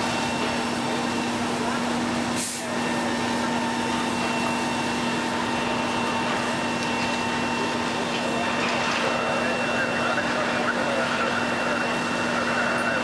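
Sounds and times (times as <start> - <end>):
diesel machinery droning: 0.0 - 13.0.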